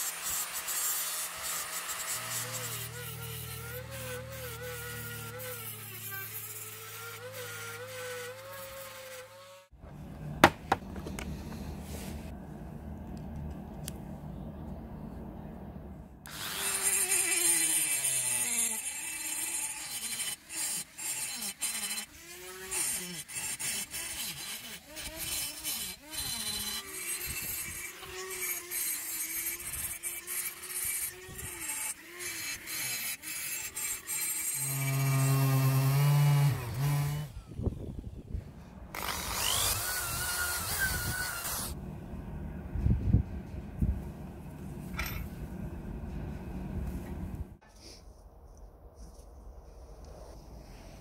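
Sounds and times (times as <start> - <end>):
steady motor hum: 9.8 - 16.8, 34.6 - 47.6
cordless drill whirring: 38.9 - 41.8.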